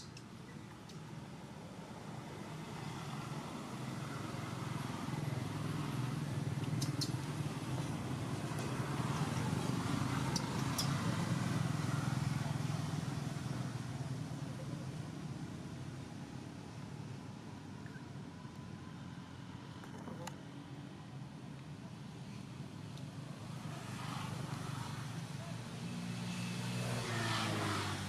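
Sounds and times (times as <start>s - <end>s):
vehicle engine passing by: 23.6s - 28.0s.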